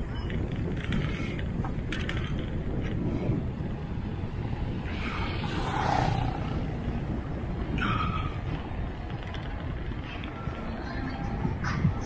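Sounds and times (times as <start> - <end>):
wind and road rumble: 0.0 - 12.0
motor vehicle passing: 2.8 - 12.0.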